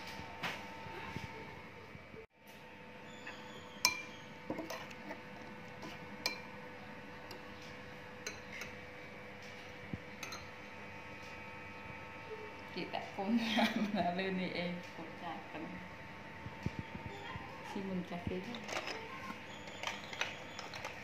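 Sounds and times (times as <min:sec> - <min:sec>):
spoon clinking against bowl: 0:03.8 - 0:05.0, 0:06.2 - 0:06.5, 0:08.2 - 0:08.8, 0:10.2 - 0:10.6.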